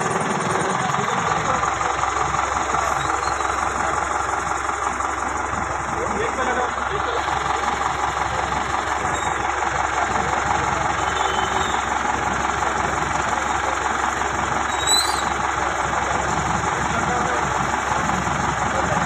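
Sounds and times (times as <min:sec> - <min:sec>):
crane engine running: 0:00.0 - 0:19.0
high squeak: 0:02.9 - 0:03.6, 0:09.1 - 0:09.5, 0:14.7 - 0:15.4.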